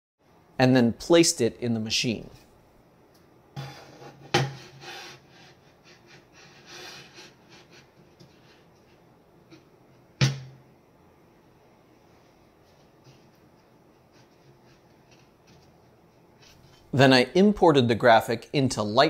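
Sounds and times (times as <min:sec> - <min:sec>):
board scraping and rubbing: 0:03.6 - 0:08.6.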